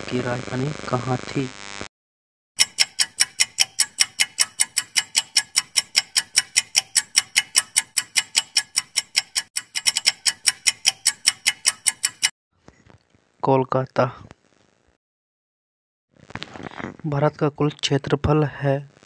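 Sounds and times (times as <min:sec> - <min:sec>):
ticking clock timer: 0:02.6 - 0:12.3.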